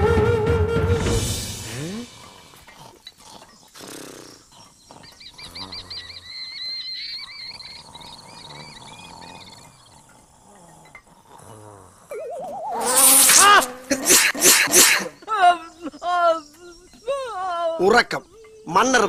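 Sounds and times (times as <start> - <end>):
film music: 0.0 - 2.2
man snoring: 1.7 - 6.2, 7.8 - 12.1
warbling whistle: 12.1 - 13.8.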